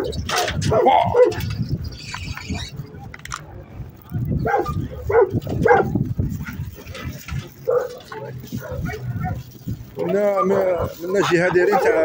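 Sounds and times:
dog barking: 0.0s - 1.4s, 4.4s - 6.0s, 7.6s - 9.5s, 11.6s - 12.0s.

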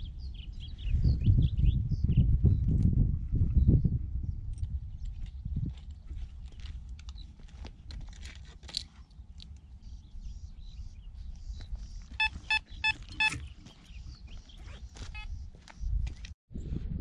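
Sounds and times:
metal detector beeping: 12.2s - 13.5s.

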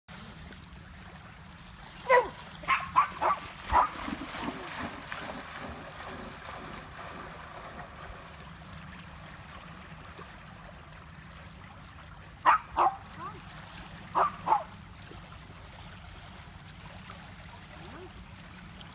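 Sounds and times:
small waves lapping at shore: 0.1s - 18.9s
dog barking: 2.1s - 3.9s, 12.4s - 13.0s, 14.2s - 14.7s.

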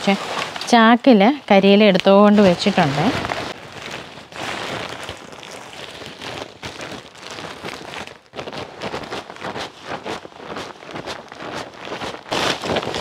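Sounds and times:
dry leaves rustling and crackling: 1.7s - 13.0s.

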